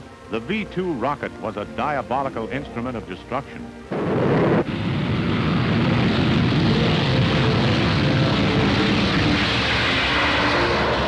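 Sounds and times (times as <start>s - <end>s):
rocket motor exhaust roar: 3.9s - 11.0s.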